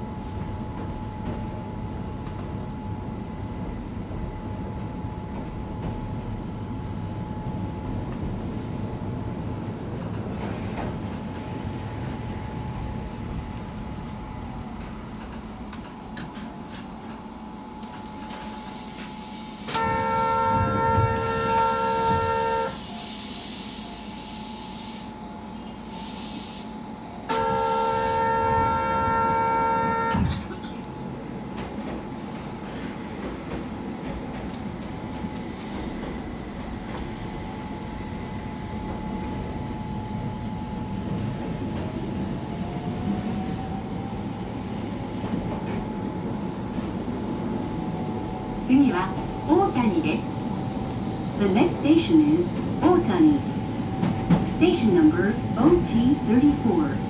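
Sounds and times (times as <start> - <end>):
train hum and rumble: 0.0 - 57.0
train horn blasts: 19.7 - 22.9, 27.2 - 30.6.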